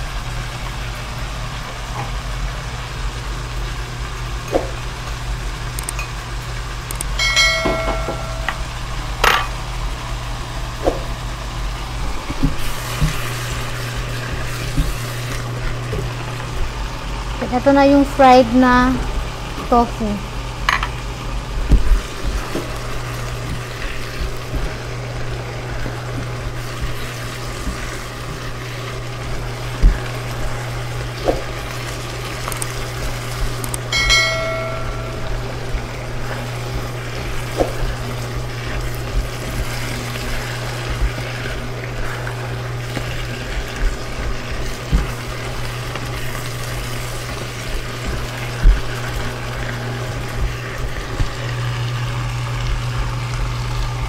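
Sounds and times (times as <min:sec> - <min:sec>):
food sizzling in a wok: 0:00.0 - 0:54.0
low hum: 0:06.9 - 0:10.8, 0:32.5 - 0:44.3
short chime: 0:07.2 - 0:08.7, 0:34.0 - 0:35.4
spatula knocking pan: 0:07.2 - 0:09.6, 0:33.9 - 0:35.9.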